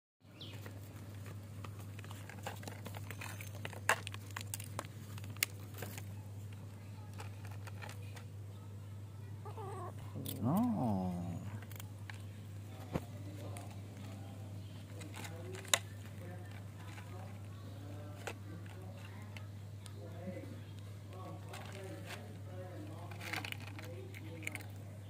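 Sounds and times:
kittens eating dry kibble: 0.4s - 25.0s
kitten meowing: 9.4s - 11.6s.

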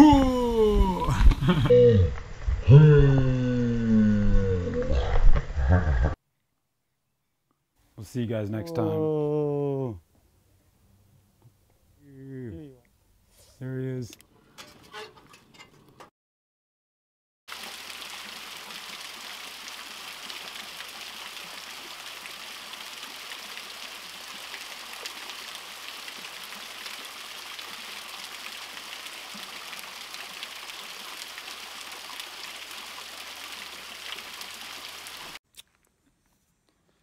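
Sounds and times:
small waterfall splashing: 17.5s - 35.4s.

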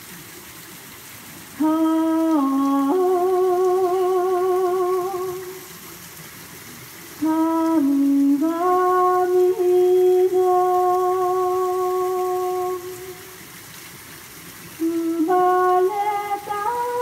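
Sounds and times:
woman singing unaccompanied: 1.6s - 5.7s, 7.2s - 13.3s, 14.8s - 17.0s.

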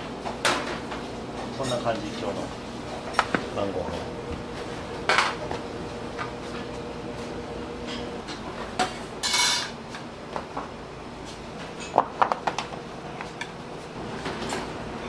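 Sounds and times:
dishes and utensils clinking: 7.8s - 9.8s.

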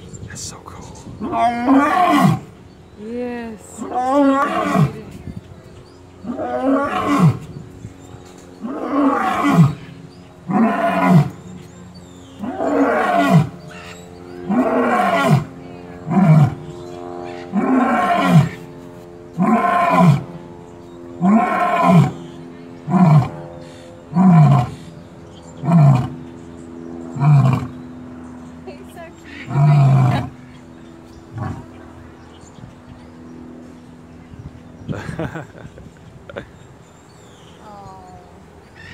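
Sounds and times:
lion roaring: 1.2s - 2.5s, 6.2s - 7.4s, 8.6s - 9.8s, 10.5s - 11.3s, 12.4s - 13.9s, 14.5s - 16.6s, 17.3s - 18.6s, 19.4s - 20.2s, 21.2s - 22.2s, 24.1s - 24.8s, 27.2s - 27.8s, 29.4s - 30.3s.

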